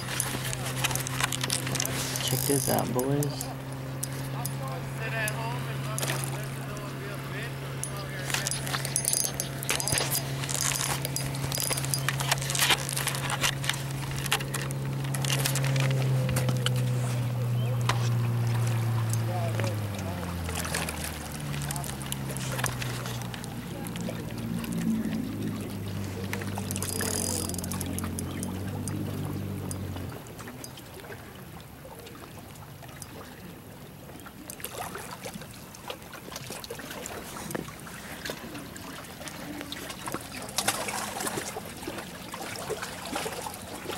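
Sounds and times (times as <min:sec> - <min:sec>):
clicks and crackles: 0:00.0 - 0:04.6, 0:07.8 - 0:16.9, 0:26.3 - 0:29.0
low motor hum: 0:00.0 - 0:34.6
small splashes: 0:00.0 - 0:43.9
water trickling among rocks: 0:00.0 - 0:43.9.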